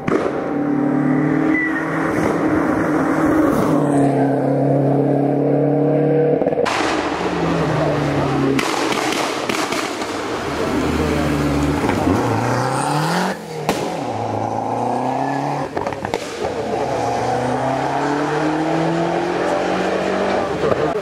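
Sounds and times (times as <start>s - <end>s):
car engine revving hard: 10.4s - 21.0s
exhaust pops: 15.7s - 16.7s.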